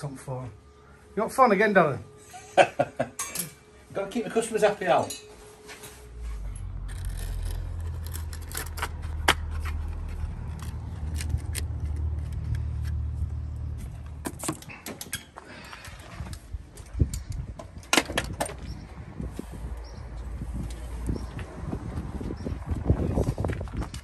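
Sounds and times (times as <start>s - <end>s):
low steady rumble: 5.9s - 14.2s.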